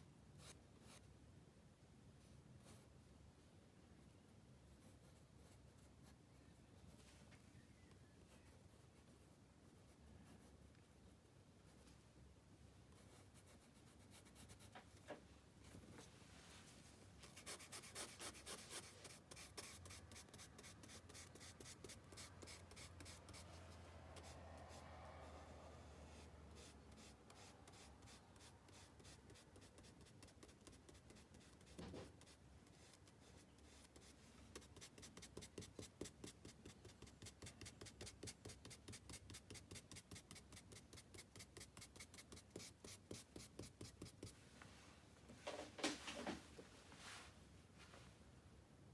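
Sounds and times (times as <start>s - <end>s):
charcoal scratching on paper: 17.2s - 44.4s.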